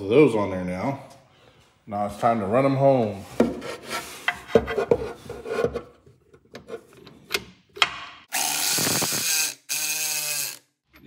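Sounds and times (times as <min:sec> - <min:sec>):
cordless power tool whine: 0:08.3 - 0:10.6.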